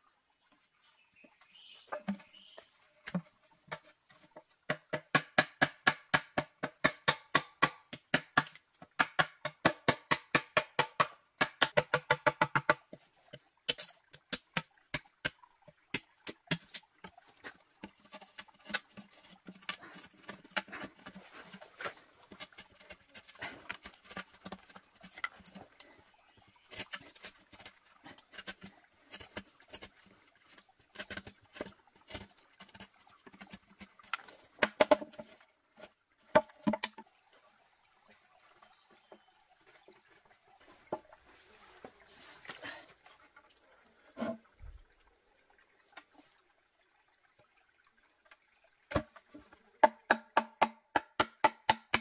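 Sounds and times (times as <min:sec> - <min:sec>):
light taps and scraping: 0:01.8 - 0:04.8, 0:16.5 - 0:37.0
blade chopping bamboo: 0:04.7 - 0:12.8, 0:49.8 - 0:52.0.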